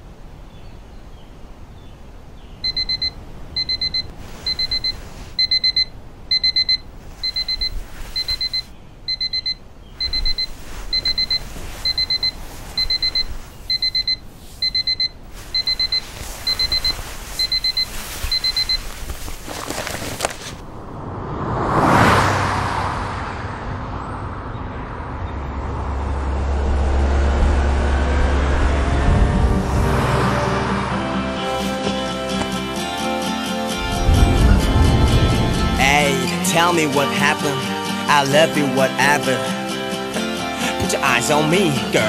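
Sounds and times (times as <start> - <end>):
alarm clock beeping: 2.7 - 18.9
rising whoosh: 20.6 - 32.8, 33.7 - 36.3.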